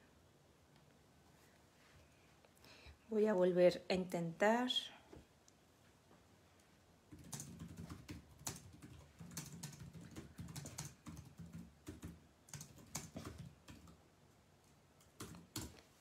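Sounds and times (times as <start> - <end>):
fingers tapping on touchscreen: 7.1 - 13.8.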